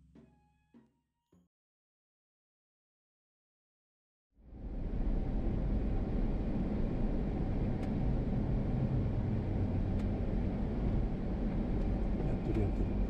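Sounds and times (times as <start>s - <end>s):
road noise: 4.6s - 13.0s
van engine rumble: 4.8s - 13.0s.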